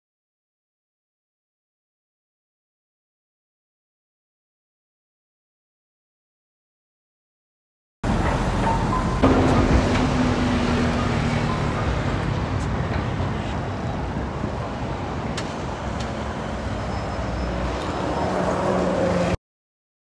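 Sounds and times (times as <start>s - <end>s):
road traffic: 8.0s - 19.4s.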